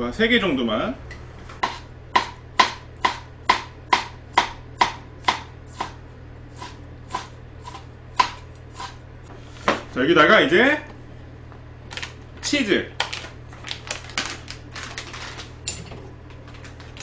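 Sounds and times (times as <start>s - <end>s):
knife chopping on cutting board: 1.6s - 9.0s.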